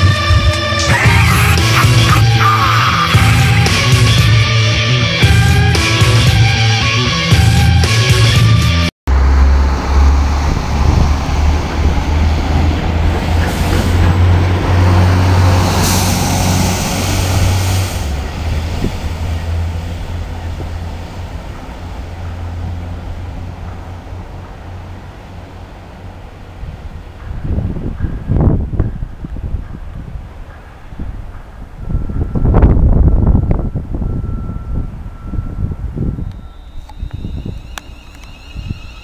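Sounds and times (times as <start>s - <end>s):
diesel engine rumble: 0.0s - 39.0s
wheel and rail noise: 9.1s - 39.0s.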